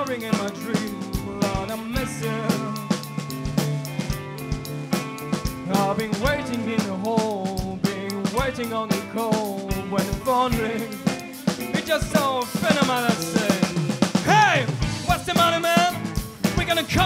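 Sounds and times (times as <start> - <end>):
drum kit beat: 0.0 - 17.0
electric bass: 0.0 - 17.0
electric guitar: 0.0 - 17.0
sliding lead melody: 0.0 - 17.0.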